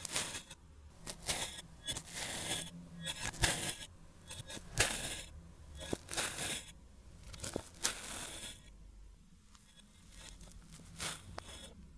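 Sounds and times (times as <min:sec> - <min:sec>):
blade crunching through sand: 0:00.0 - 0:06.7, 0:07.4 - 0:08.6, 0:10.1 - 0:11.7.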